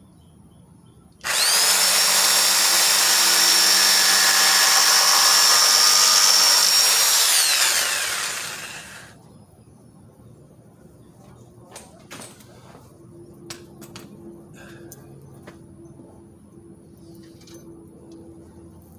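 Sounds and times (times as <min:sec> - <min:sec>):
electric router motor whine: 0:01.2 - 0:09.2.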